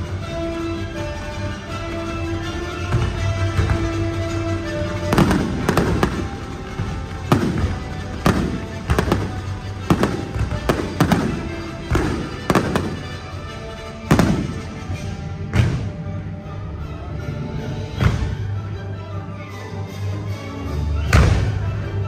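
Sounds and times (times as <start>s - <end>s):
music: 0.0s - 22.0s
fireworks bangs: 5.0s - 16.0s.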